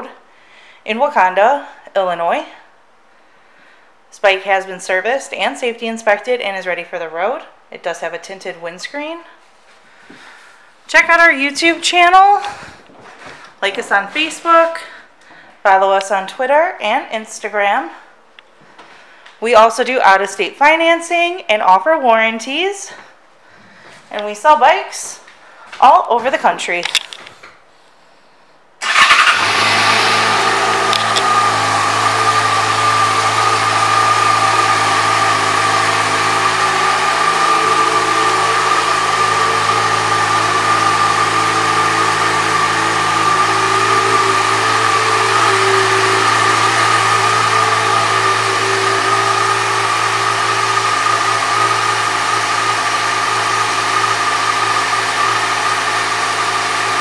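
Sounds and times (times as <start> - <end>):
motorcycle engine cranking: 28.8 - 57.0
motorcycle engine idling: 28.8 - 57.0.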